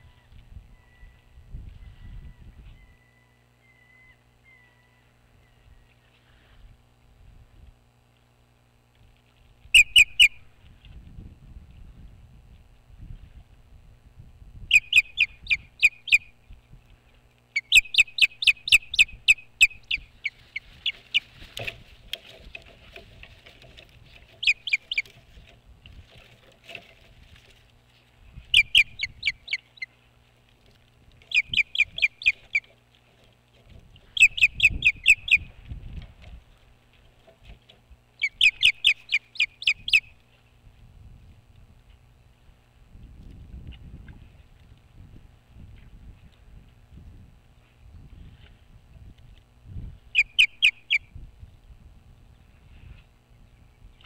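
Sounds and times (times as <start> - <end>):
osprey piercing chirps: 9.7 - 10.5, 14.7 - 16.4, 17.6 - 21.3, 24.4 - 25.1, 28.5 - 29.9, 31.3 - 32.7, 34.2 - 35.5, 38.2 - 40.2, 50.1 - 51.1.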